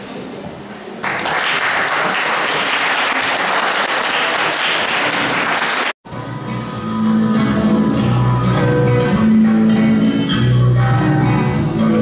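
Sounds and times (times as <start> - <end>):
audience applause: 1.0 - 6.0.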